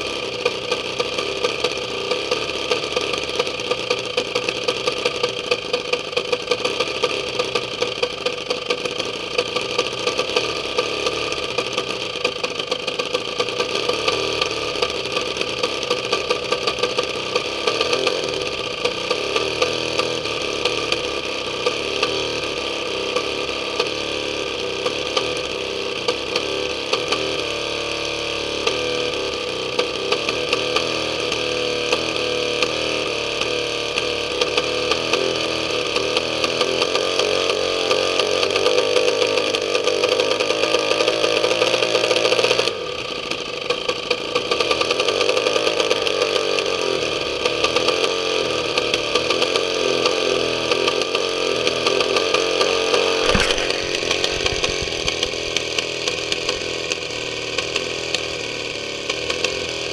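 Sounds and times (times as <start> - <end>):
engine spinning propeller: 0.0 - 27.1, 50.8 - 59.9
sharp cracks: 53.2 - 56.7.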